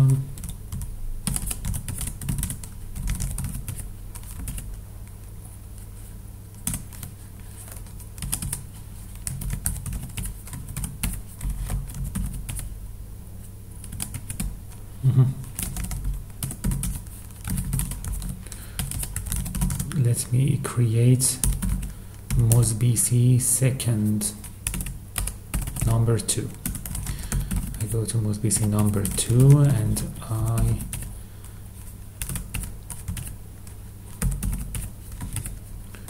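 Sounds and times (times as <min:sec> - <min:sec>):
typing on a keyboard: 0:00.0 - 0:04.8, 0:06.6 - 0:07.1, 0:07.7 - 0:12.7, 0:13.8 - 0:14.5, 0:15.4 - 0:20.0, 0:21.4 - 0:22.6, 0:24.4 - 0:26.0, 0:26.6 - 0:31.1, 0:32.2 - 0:35.6.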